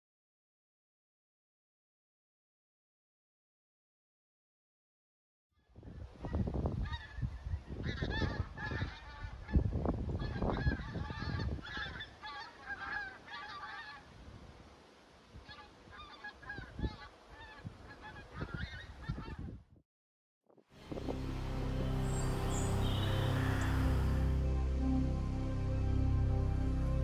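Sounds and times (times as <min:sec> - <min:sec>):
geese honking: 0:07.8 - 0:09.6, 0:10.2 - 0:14.1, 0:15.4 - 0:19.4, 0:21.0 - 0:24.5
low rumble: 0:20.8 - 0:27.0.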